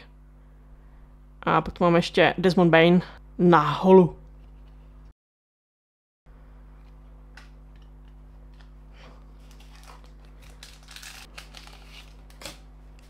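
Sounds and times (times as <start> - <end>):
steady low hum: 0.0 - 5.1, 6.3 - 13.0
card pack wrapper crinkling: 9.4 - 13.0.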